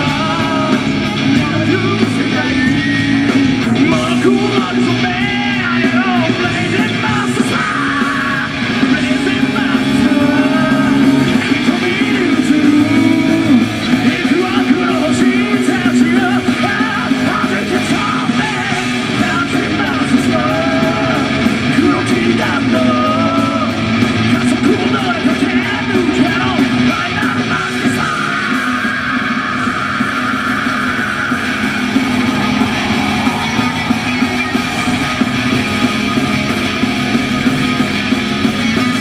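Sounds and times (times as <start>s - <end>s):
heavy metal band playing live: 0.0s - 39.0s.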